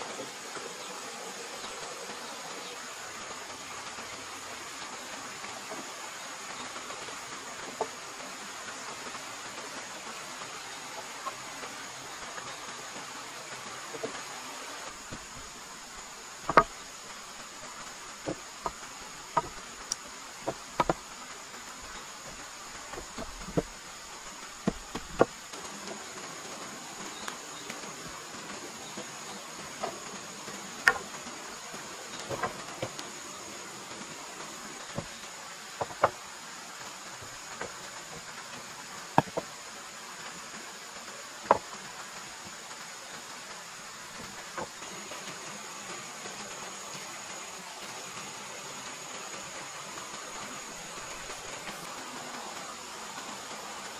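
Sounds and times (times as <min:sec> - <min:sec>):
high insect drone: 0:00.0 - 0:53.9
wooden knocks of logs: 0:15.1 - 0:15.7, 0:16.4 - 0:21.2, 0:22.2 - 0:25.7, 0:30.8 - 0:31.2, 0:32.2 - 0:33.1, 0:34.9 - 0:35.2, 0:35.8 - 0:36.2, 0:37.2 - 0:38.3, 0:39.1 - 0:39.5, 0:41.5 - 0:41.7, 0:44.2 - 0:44.8.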